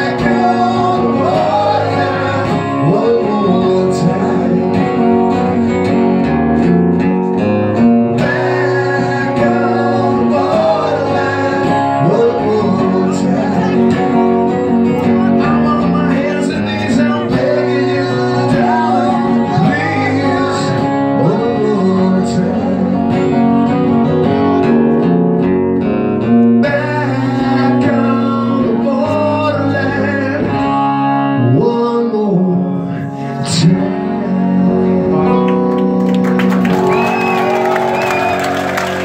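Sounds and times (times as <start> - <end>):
man singing: 0.0 - 6.7, 8.0 - 25.0, 26.5 - 36.3
acoustic guitars strummed and picked: 0.0 - 39.0.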